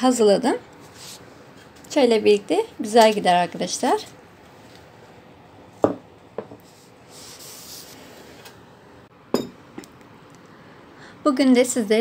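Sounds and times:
soft rubbing and handling: 0.7s - 2.0s, 6.5s - 8.6s
dishes knocking on a tabletop: 5.8s - 6.6s, 9.3s - 9.9s.

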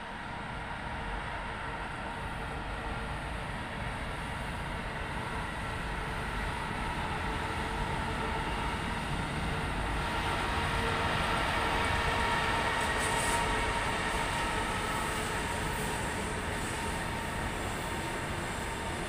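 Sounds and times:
electric train rumble and whine: 0.0s - 19.0s.

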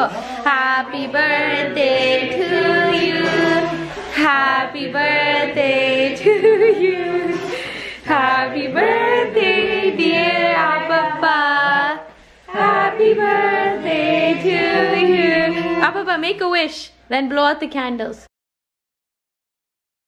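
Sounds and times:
group of voices singing together: 0.0s - 16.0s.

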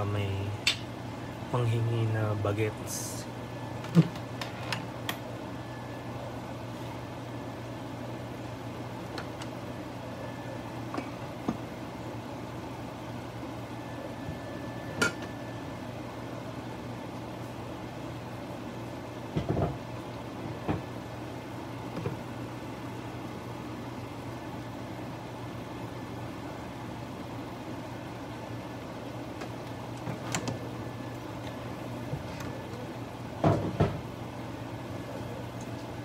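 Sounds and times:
low kitchen hum: 0.0s - 36.0s.

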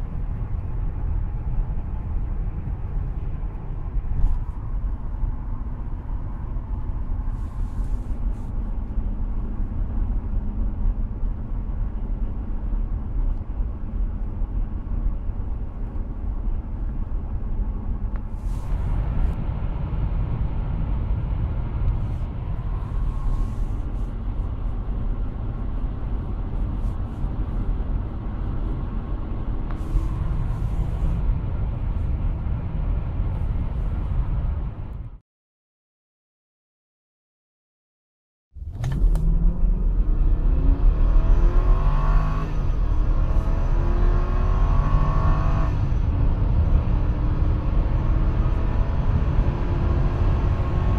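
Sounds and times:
car engine humming: 0.0s - 34.8s
tyres rumbling on road: 0.0s - 35.2s
wind noise: 18.1s - 35.2s.

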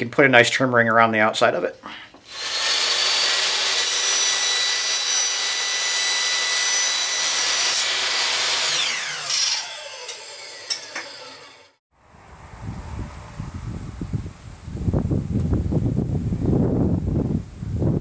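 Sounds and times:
chop saw whine: 2.2s - 11.8s
motor winding down: 7.8s - 11.8s.

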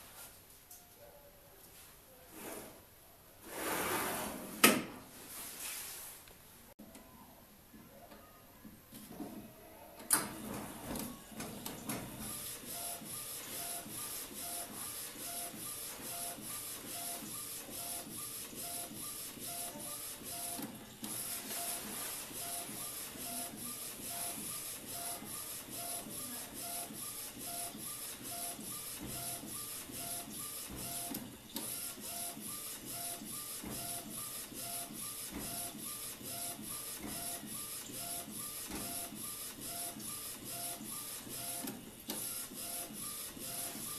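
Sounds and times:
printer carriage shuttling and whirring: 10.0s - 43.9s.

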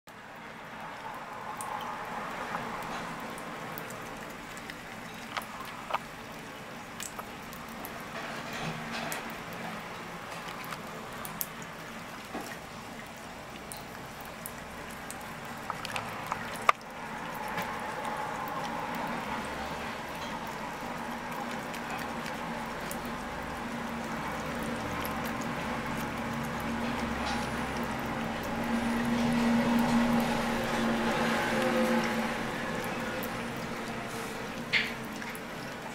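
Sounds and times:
cat lapping water: 0.6s - 35.9s.

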